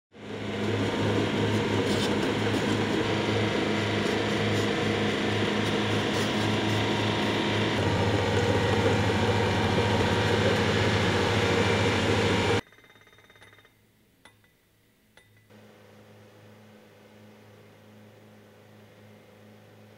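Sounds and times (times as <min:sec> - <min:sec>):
pile driver mechanical drone: 0:00.2 - 0:12.6.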